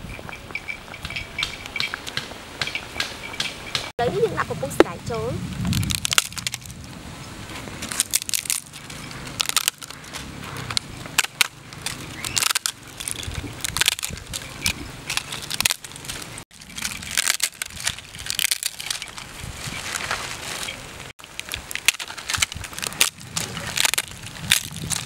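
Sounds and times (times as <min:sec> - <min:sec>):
dried sheets snapping and crunching: 0:05.7 - 0:06.8, 0:07.8 - 0:25.0.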